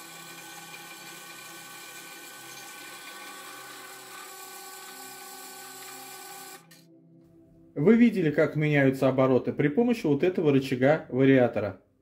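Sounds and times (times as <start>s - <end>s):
drill press motor whine: 0.0s - 6.8s.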